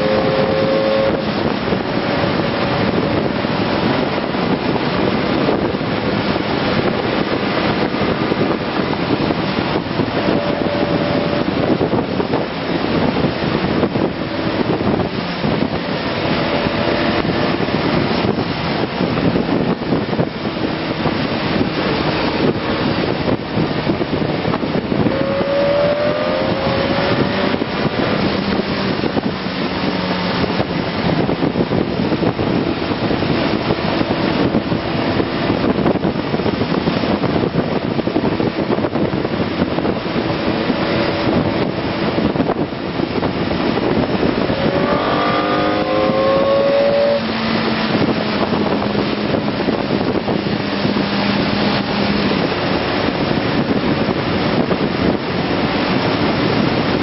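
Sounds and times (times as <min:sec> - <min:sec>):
wind rush on microphone: 0:00.0 - 0:57.0
motorcycle engine: 0:20.2 - 0:31.9, 0:39.7 - 0:53.4.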